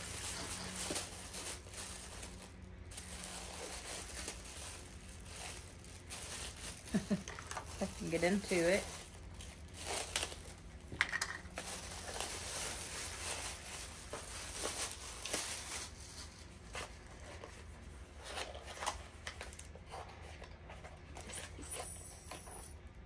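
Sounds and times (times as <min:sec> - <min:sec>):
packaging being torn open: 0:09.2 - 0:17.0.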